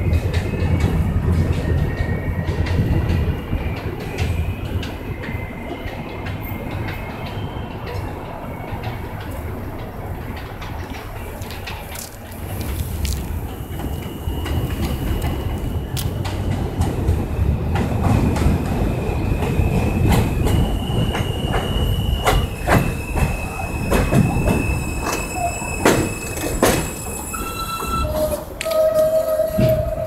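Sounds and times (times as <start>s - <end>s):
subway train rumbling: 0.0s - 30.0s
wheels clacking over rail joints: 0.0s - 30.0s
high brake squeal: 19.4s - 30.0s.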